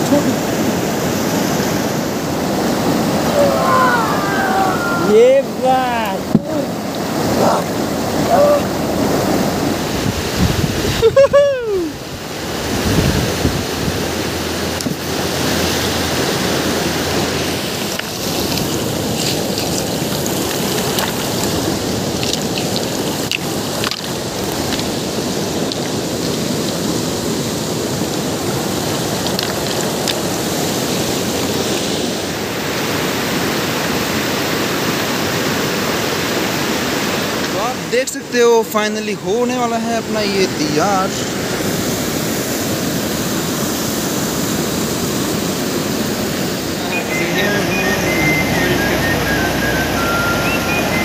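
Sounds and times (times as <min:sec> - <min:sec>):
rushing river water: 0:00.0 - 0:51.0
brief falling cry: 0:03.2 - 0:05.2.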